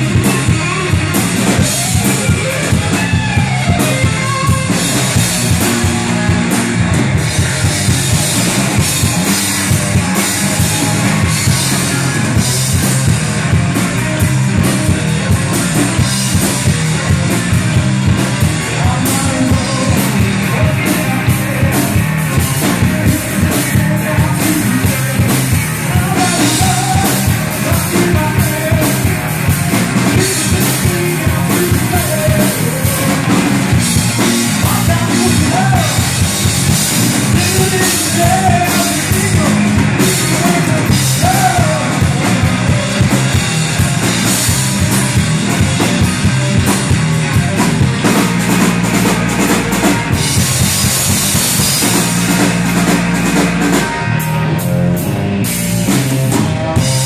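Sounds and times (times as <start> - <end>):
bass guitar: 0.0 - 57.0
drum kit: 0.0 - 57.0
electric guitar: 0.0 - 57.0
man singing into microphone: 18.6 - 22.1, 22.8 - 29.1, 30.1 - 33.4, 34.6 - 36.1, 37.3 - 42.6.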